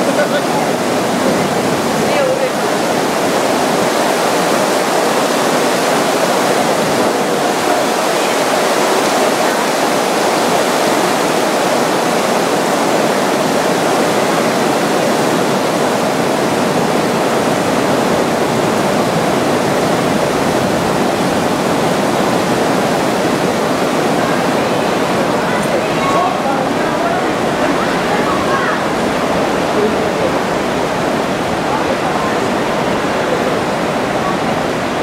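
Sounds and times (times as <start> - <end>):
heavy rain pouring: 0.0 - 35.0.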